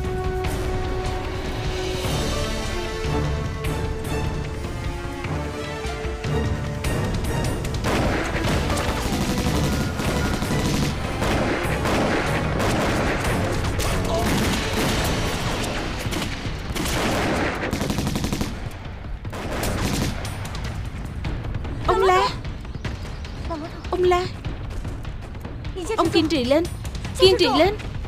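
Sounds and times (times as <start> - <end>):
rifle and machine-gun fire: 7.8 - 21.1.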